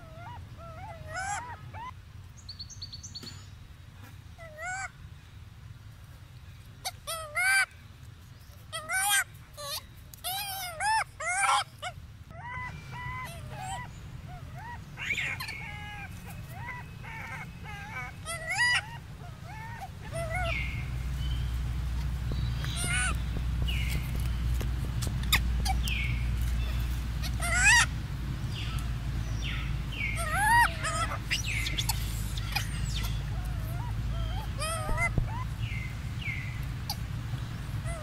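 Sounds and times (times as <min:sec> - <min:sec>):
monkey honking squeaks: 0:08.7 - 0:21.0, 0:22.3 - 0:24.2, 0:24.9 - 0:27.9, 0:30.0 - 0:35.8, 0:37.8 - 0:38.0.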